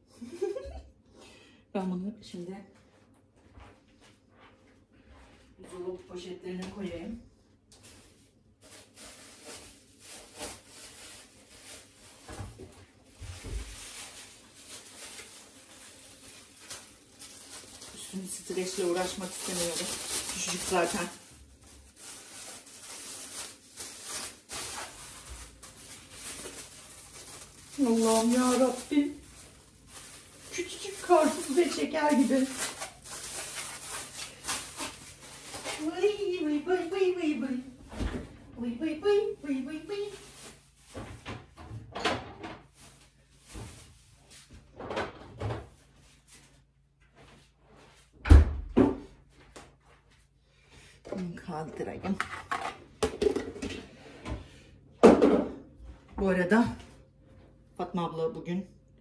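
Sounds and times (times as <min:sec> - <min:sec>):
plastic bag rustling: 0:07.7 - 0:38.1, 0:38.8 - 0:41.6, 0:42.6 - 0:44.8
kitchen items knocking and bumping: 0:40.9 - 0:42.8, 0:51.1 - 0:55.7.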